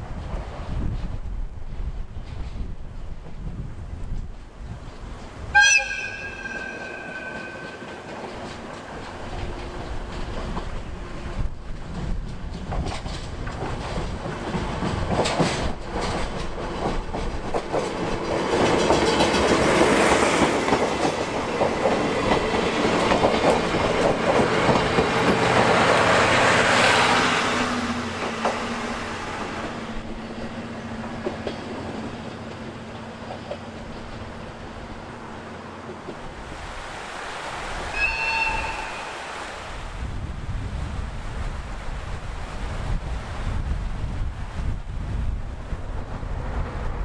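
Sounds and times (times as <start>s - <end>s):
train wheels clattering over rail joints: 6.3s - 27.2s, 27.8s - 36.4s.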